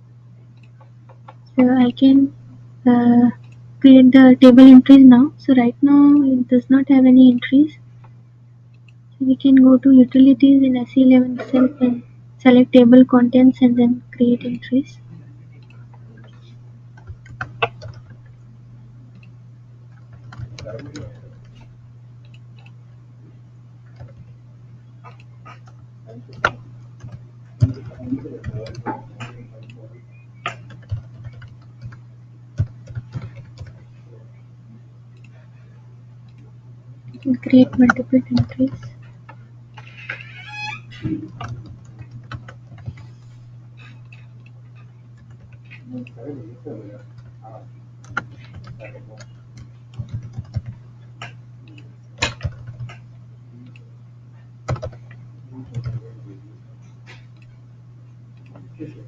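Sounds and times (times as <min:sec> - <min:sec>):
steady low hum: 0:00.0 - 0:59.0
keyboard typing clicks: 0:15.6 - 0:18.3, 0:19.1 - 0:22.8, 0:23.9 - 0:24.4, 0:25.0 - 0:29.8, 0:30.4 - 0:32.0, 0:32.6 - 0:33.8, 0:35.1 - 0:35.4, 0:37.1 - 0:43.2, 0:43.8 - 0:46.2, 0:48.0 - 0:53.8, 0:54.6 - 0:56.0.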